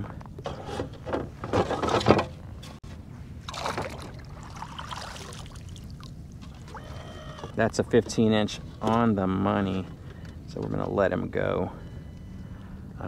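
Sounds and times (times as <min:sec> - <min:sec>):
water splashing and trickling: 0:03.4 - 0:07.6.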